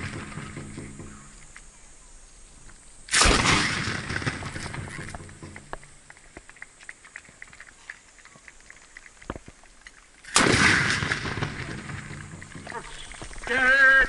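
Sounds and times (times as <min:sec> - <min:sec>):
loud matchlock gunfire: 0:03.1 - 0:05.2, 0:10.3 - 0:12.2.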